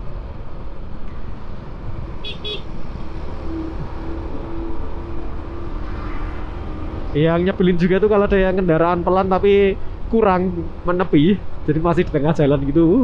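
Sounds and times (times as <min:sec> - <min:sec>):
horn beeps: 0:02.2 - 0:02.7.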